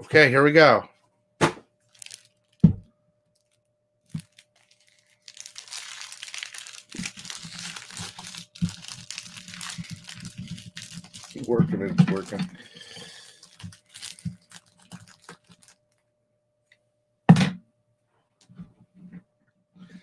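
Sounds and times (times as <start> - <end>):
packing crinkling and tearing: 1.8 - 2.7, 3.4 - 15.9.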